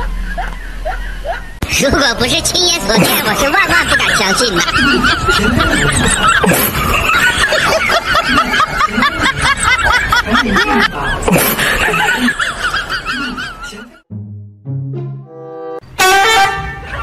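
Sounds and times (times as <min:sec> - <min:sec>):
high-pitched giggling laughter: 0:00.0 - 0:01.6, 0:02.9 - 0:14.0.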